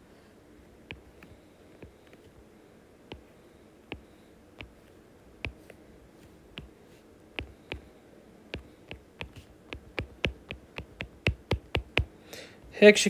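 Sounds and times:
stylus tapping on glass screen: 3.9 - 4.8, 7.4 - 7.9, 8.6 - 12.1.

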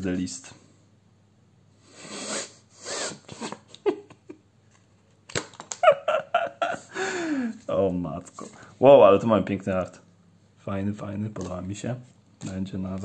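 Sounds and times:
breathy sniffs: 1.8 - 3.6
trading cards clicking: 5.2 - 5.9.

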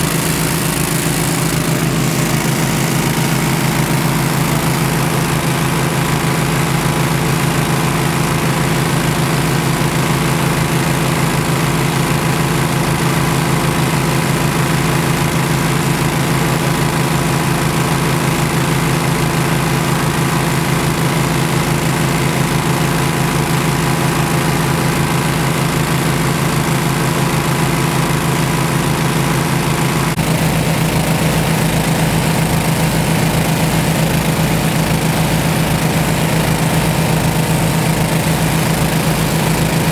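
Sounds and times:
boat engine throbbing: 0.0 - 7.7.

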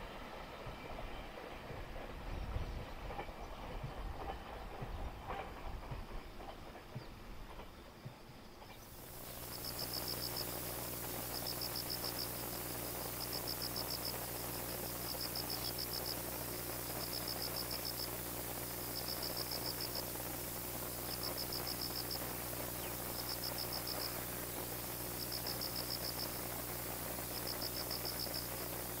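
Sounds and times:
steady low hum: 0.0 - 29.0
cricket chirping: 8.8 - 29.0.

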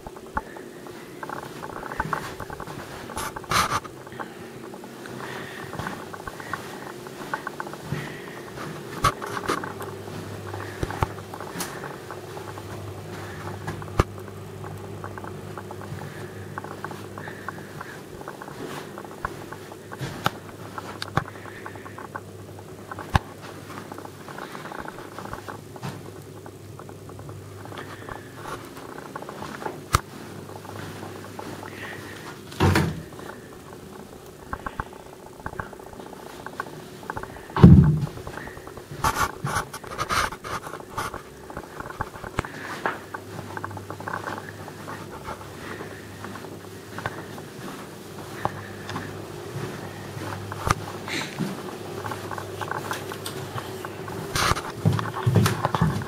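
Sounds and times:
footsteps clicking: 0.0 - 56.0
steady low hum: 0.0 - 56.0
rustling knock: 37.5 - 40.6.

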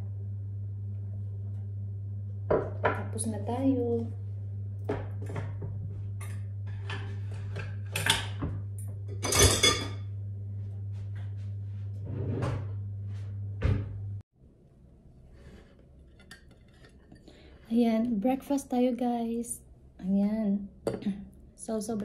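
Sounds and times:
steady low hum: 0.0 - 22.0
kitchenware knocking and clattering: 4.9 - 10.0.

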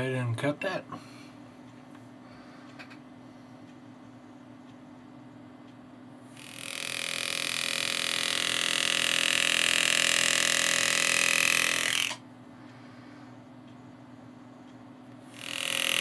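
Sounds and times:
pneumatic engraving tool buzzing: 6.3 - 12.2, 15.2 - 16.0.

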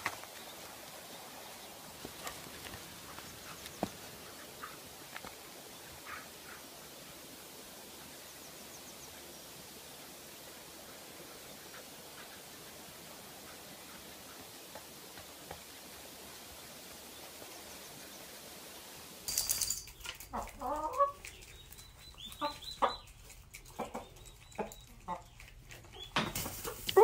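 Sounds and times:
faint hiss: 0.0 - 19.6
hens clucking: 20.2 - 26.9.

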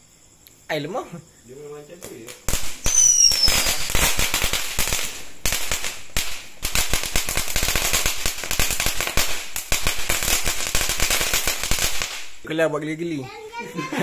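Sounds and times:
firecrackers cracking: 1.9 - 12.6.

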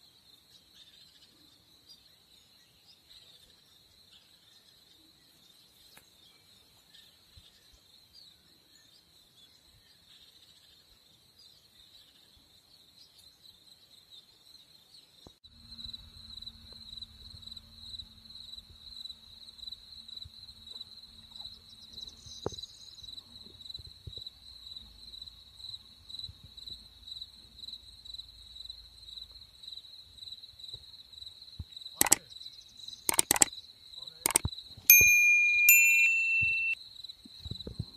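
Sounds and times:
crickets chirping: 15.5 - 34.7
sharp clicks: 32.0 - 32.2, 33.1 - 33.5, 34.2 - 36.8
electronic ding: 34.3 - 36.8.

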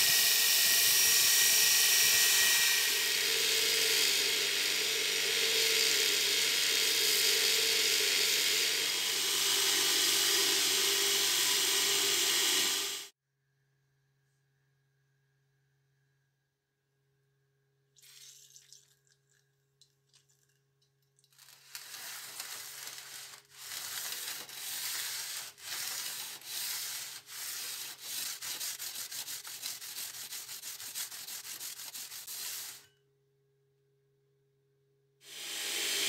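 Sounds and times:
metal rasping on sandpaper: 21.7 - 32.9.

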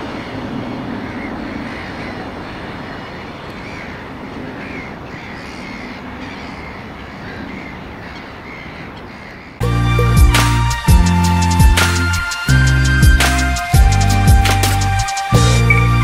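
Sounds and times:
birds calling: 0.0 - 16.0
diesel locomotive engine rumbling: 9.6 - 16.0.

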